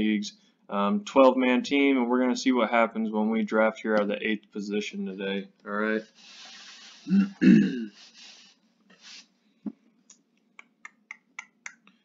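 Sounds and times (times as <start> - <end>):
man clearing throat: 7.1 - 8.0.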